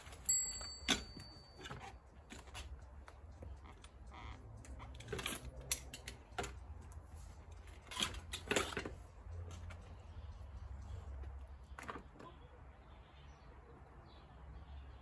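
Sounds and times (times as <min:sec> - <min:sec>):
folding bike clicks and clunks: 0:00.0 - 0:02.8, 0:04.7 - 0:06.9, 0:07.6 - 0:09.8.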